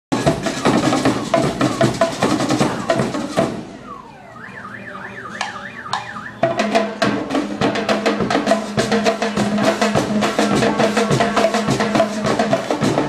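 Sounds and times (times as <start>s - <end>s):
marching band drums: 0.1s - 4.1s, 5.1s - 13.0s
high warbling tone: 0.2s - 6.8s.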